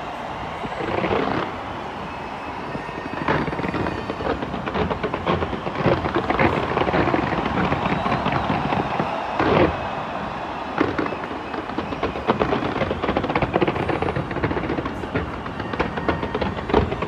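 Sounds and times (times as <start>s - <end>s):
fireworks bangs and pops: 0.0s - 17.0s.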